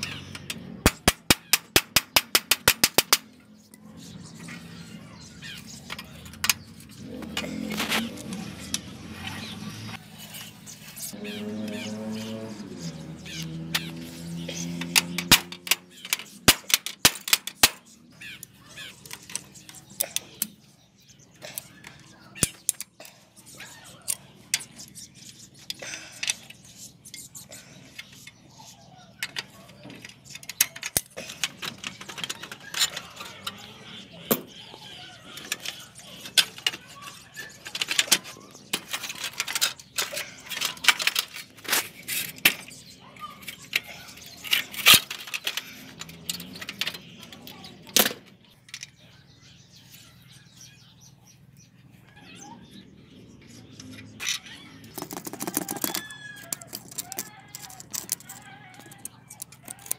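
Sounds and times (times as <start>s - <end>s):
hand tools clinking on bicycle frame: 54.2s - 59.9s.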